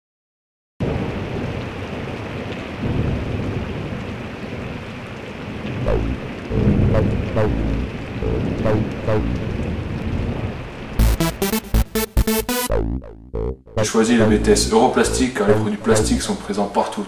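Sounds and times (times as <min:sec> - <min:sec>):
rain-like hiss: 0:00.8 - 0:08.6, 0:09.2 - 0:11.6
thunder rumbling: 0:05.7 - 0:11.4
music with deep bass: 0:05.9 - 0:09.6, 0:11.0 - 0:16.4.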